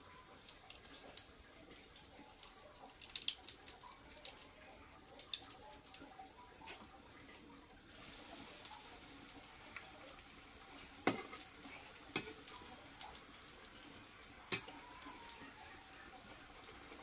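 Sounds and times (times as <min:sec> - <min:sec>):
fritters sizzling in oil: 0:00.0 - 0:17.0
metal spatula clinking on pan: 0:14.5 - 0:14.8.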